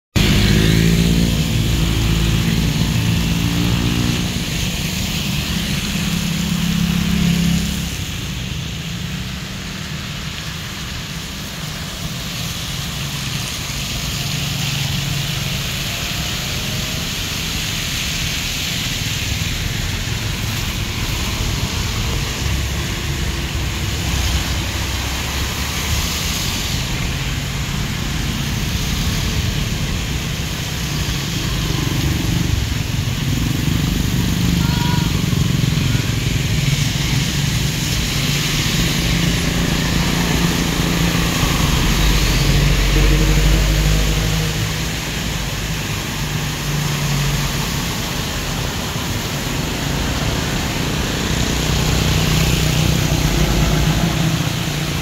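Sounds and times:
tyres hissing through water: 0:00.2 - 0:55.0
faint passing engines: 0:30.8 - 0:55.0.

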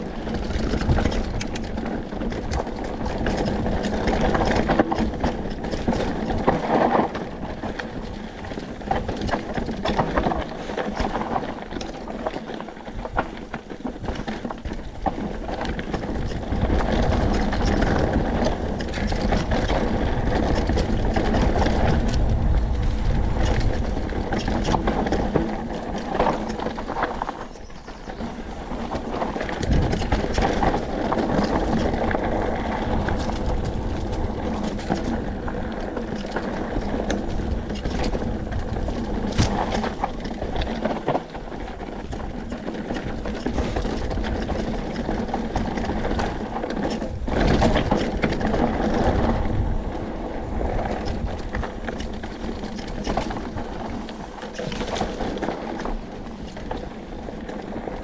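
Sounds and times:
bike rattling: 0:00.0 - 0:58.0
tyres crunching over dirt and stones: 0:00.0 - 0:58.0
wind buffeting microphone: 0:00.0 - 0:58.0.

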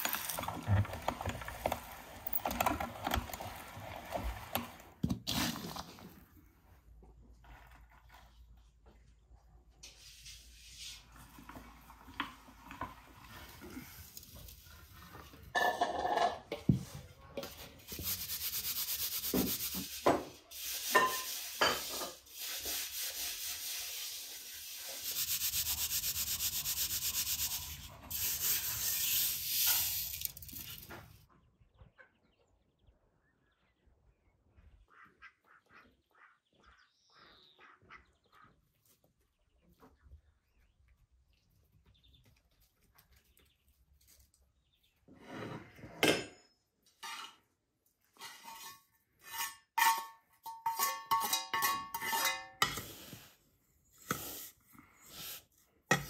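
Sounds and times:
metal utensil scraping ground nuts: 0:00.0 - 0:05.8, 0:17.8 - 0:30.9, 0:48.2 - 0:53.3.

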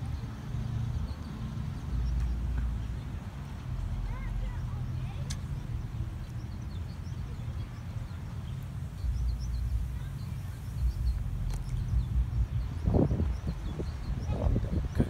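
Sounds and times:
small birds chirping: 0:00.0 - 0:15.0
wind rumbling on microphone: 0:05.5 - 0:15.0.

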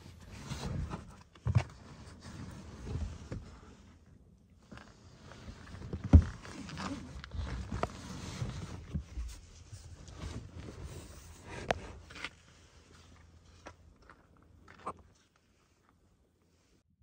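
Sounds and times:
plastic box scraping and rubbing: 0:00.0 - 0:03.7, 0:04.7 - 0:13.1.

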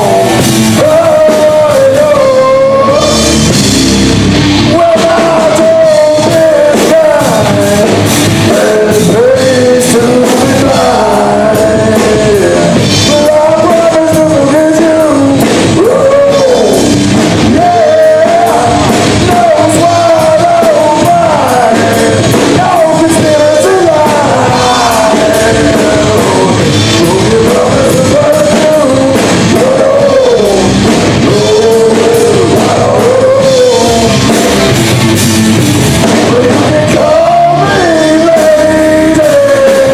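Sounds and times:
drums: 0:00.0 - 0:39.9
electric guitars: 0:00.0 - 0:39.9
person singing: 0:00.0 - 0:39.9.

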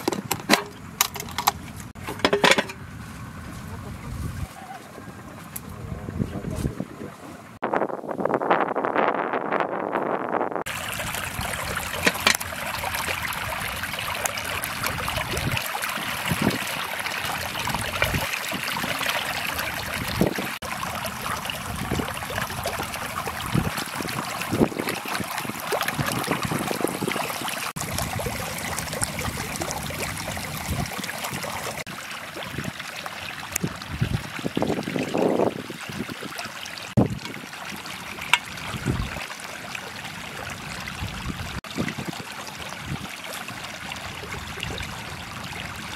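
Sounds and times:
metal tins knocking: 0:00.0 - 0:02.8
water running through a channel: 0:10.6 - 0:45.9
water splashes: 0:10.6 - 0:45.9.

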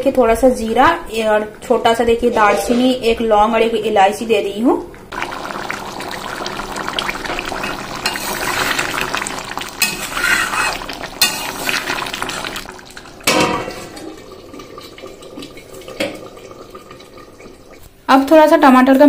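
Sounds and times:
curry gravy sloshing: 0:05.1 - 0:18.1
spoon scraping against pan: 0:08.0 - 0:08.8, 0:09.8 - 0:11.7
steel plate clanking on pan: 0:09.8 - 0:11.6, 0:13.2 - 0:14.1.

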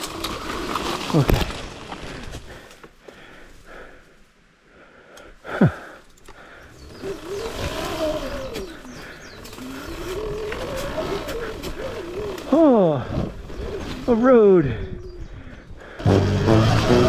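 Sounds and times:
electric motor whining: 0:06.7 - 0:14.1, 0:16.0 - 0:17.0.

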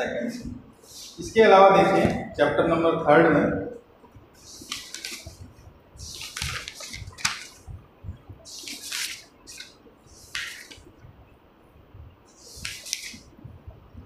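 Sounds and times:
short hissing swishes: 0:00.8 - 0:01.2, 0:08.5 - 0:10.9, 0:12.3 - 0:13.3.

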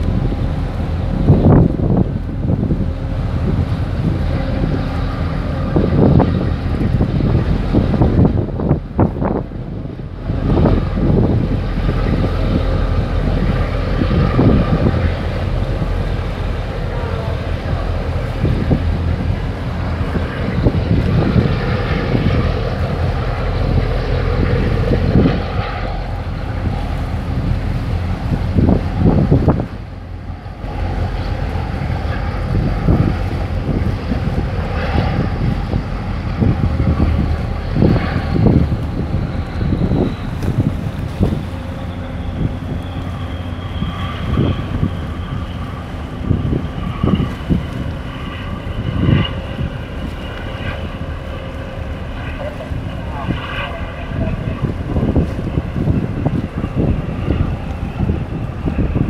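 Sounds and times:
boat engine drone: 0:00.0 - 0:59.0
wind buffeting microphone: 0:00.0 - 0:59.0
faint steady whine: 0:08.5 - 0:59.0.

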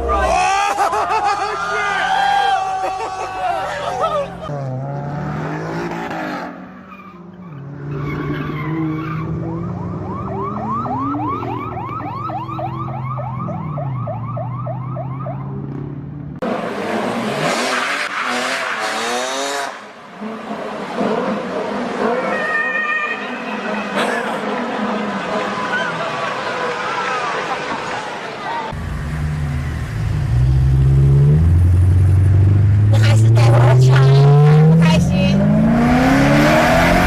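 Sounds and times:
street traffic: 0:00.0 - 0:37.0
car engine revving: 0:04.2 - 0:11.3, 0:15.2 - 0:22.4, 0:28.7 - 0:37.0
police siren yelping: 0:08.1 - 0:15.6.

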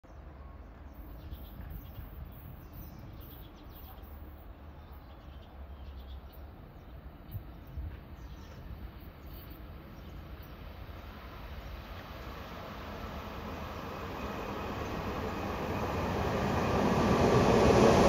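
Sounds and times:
small birds chirping: 0:00.9 - 0:12.6.

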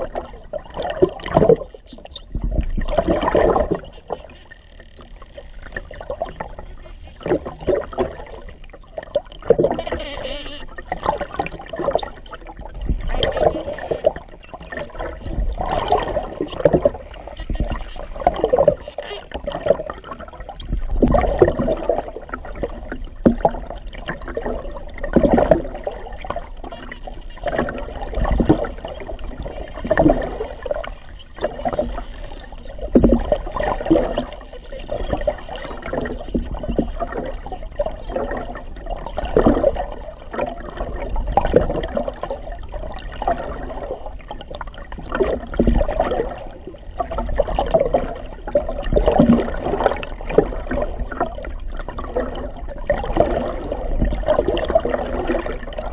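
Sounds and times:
dolphin whistles: 0:00.4 - 0:02.6, 0:03.4 - 0:08.7, 0:09.8 - 0:14.7, 0:15.3 - 0:20.0, 0:20.6 - 0:22.4, 0:26.1 - 0:38.2, 0:49.7 - 0:51.4
water washing underwater: 0:10.7 - 0:55.9.

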